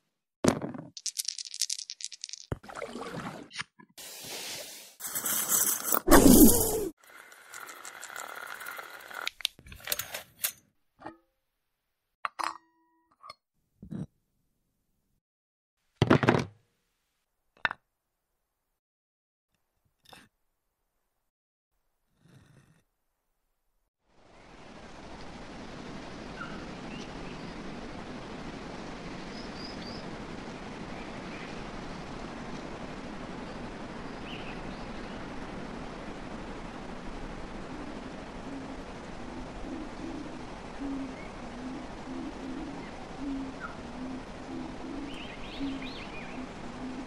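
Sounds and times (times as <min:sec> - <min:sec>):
hiss: 0:04.0 - 0:07.0
faint bird chirps: 0:39.6 - 0:47.0.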